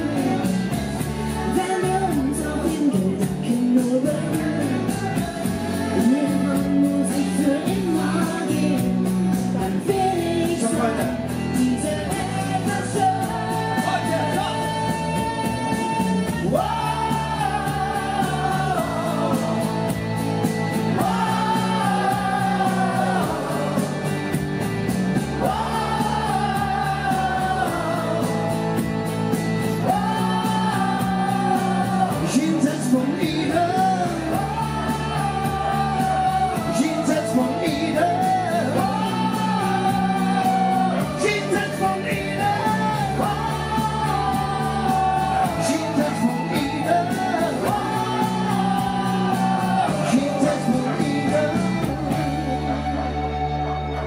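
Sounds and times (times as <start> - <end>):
man singing: 0.0 - 53.0
pop instrumental backing: 0.0 - 54.0
woman singing: 1.3 - 19.8, 29.8 - 52.4.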